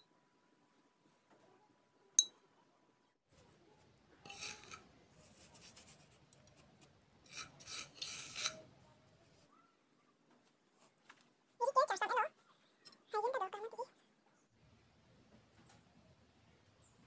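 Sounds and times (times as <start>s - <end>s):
spoon scraping metal plate: 4.2s - 4.9s, 7.2s - 8.7s.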